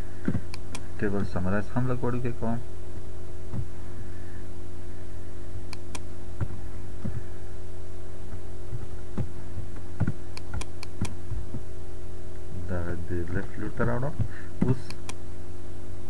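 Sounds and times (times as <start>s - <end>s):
electrical hum: 0.0s - 16.0s
computer mouse clicks: 0.2s - 0.9s, 5.7s - 6.1s, 10.0s - 11.2s, 14.6s - 15.2s.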